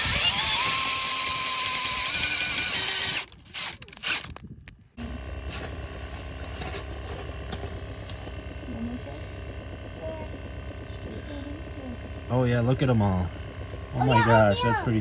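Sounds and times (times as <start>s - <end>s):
cordless drill whining: 0.0s - 4.4s
steady low hum: 0.0s - 15.0s.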